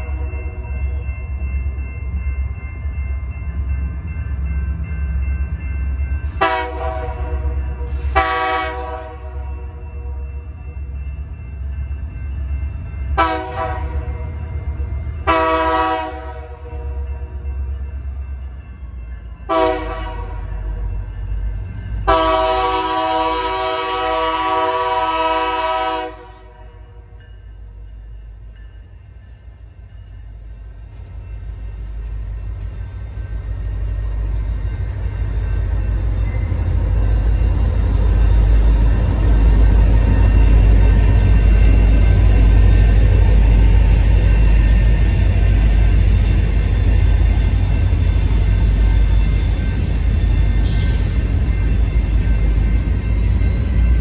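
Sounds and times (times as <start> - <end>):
low rumble of train engine: 0.0 - 54.0
locomotive air horn blasts: 6.4 - 9.4, 13.2 - 14.1, 15.3 - 16.7, 19.5 - 20.5, 22.1 - 26.7.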